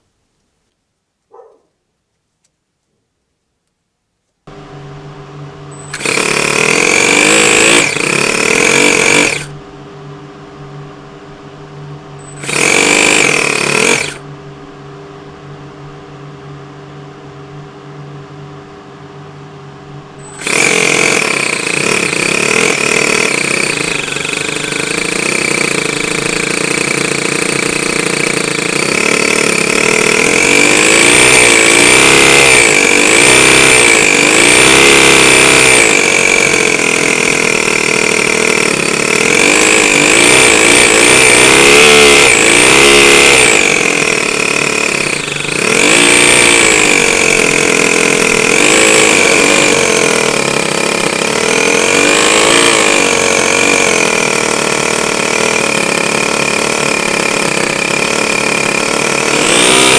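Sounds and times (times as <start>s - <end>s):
high supercharger whine: 4.5s - 59.9s
model engine running and revving: 5.7s - 9.5s, 12.2s - 14.2s, 20.2s - 59.9s.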